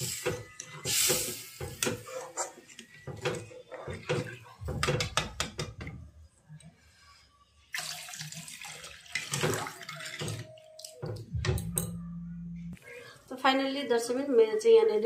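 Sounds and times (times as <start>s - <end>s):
water splashing into hot pan: 7.7s - 10.5s.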